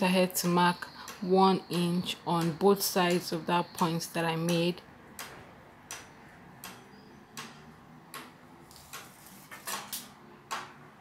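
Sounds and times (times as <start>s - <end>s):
distant hammering: 0.4s - 9.1s.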